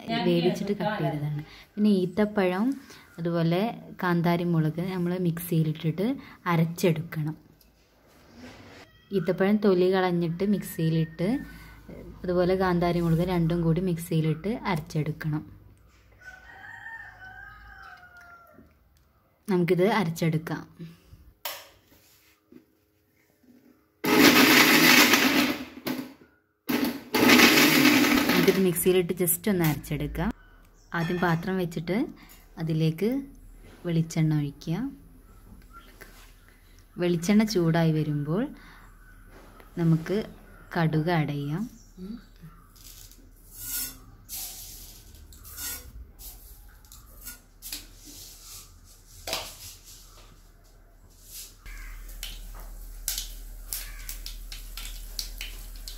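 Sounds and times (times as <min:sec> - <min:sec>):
mixer grinder running: 0:24.0 - 0:25.8, 0:26.7 - 0:28.7.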